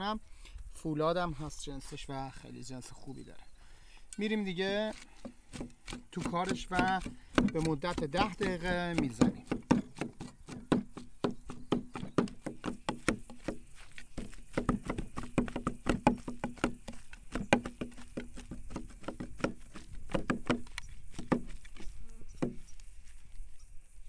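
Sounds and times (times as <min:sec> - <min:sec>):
cleavers chopping on wooden block: 0:04.8 - 0:22.7.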